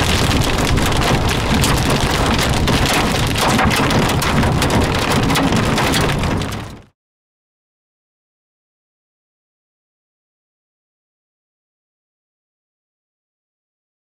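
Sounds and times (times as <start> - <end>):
car rumbling on wet road: 0.0 - 6.9
rain pattering on car: 0.0 - 6.9.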